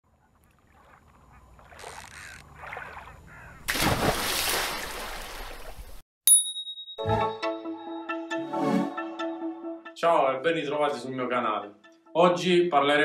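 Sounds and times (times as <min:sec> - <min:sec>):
faint calls: 0:00.2 - 0:03.7.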